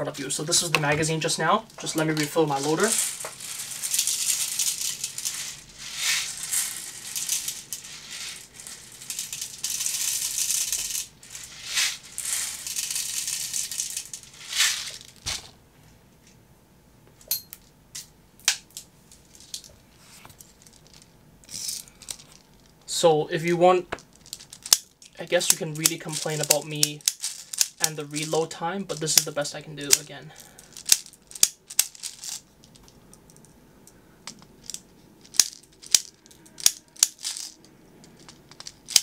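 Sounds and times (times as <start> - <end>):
plastic pellets rattling: 1.4 - 15.5, 20.4 - 22.7, 24.0 - 33.5, 34.3 - 39.0.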